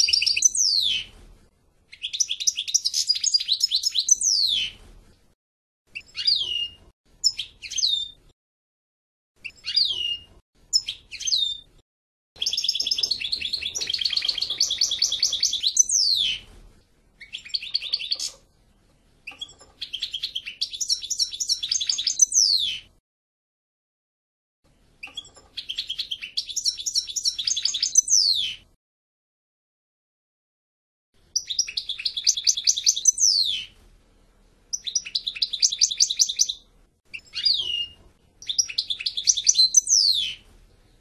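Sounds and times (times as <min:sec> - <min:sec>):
goldfinch singing: 0:00.0 - 0:01.1, 0:01.9 - 0:04.7, 0:12.4 - 0:16.4, 0:17.2 - 0:18.4, 0:19.3 - 0:22.8, 0:25.0 - 0:28.6, 0:31.4 - 0:33.7, 0:34.7 - 0:40.4.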